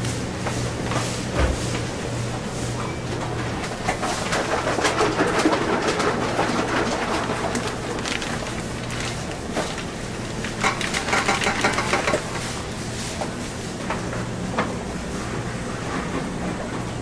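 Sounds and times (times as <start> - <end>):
plastic bag rustling and clattering: 3.7 - 12.6.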